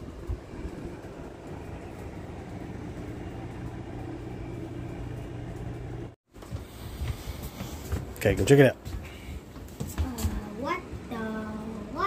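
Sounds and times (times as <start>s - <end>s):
appliance mechanical hum: 0.0s - 12.0s.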